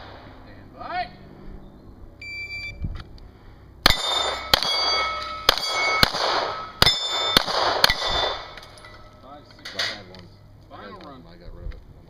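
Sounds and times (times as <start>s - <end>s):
shot timer beep: 2.2s - 2.8s
pistol shots: 3.8s - 8.8s
steel plates clanging: 3.9s - 10.1s.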